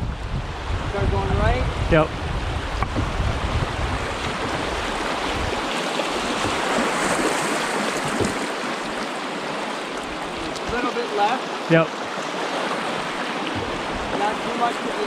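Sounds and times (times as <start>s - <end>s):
river rapids rushing: 2.6s - 15.0s.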